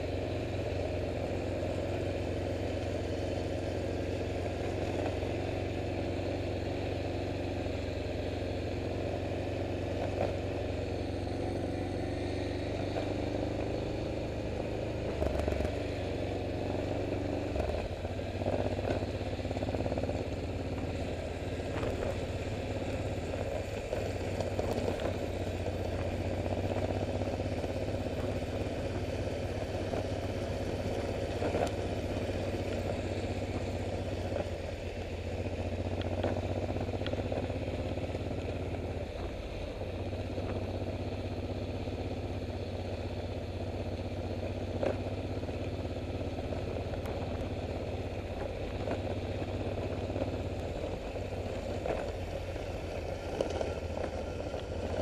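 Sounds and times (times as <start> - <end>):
motorcycle engines idling: 0.0 - 55.0.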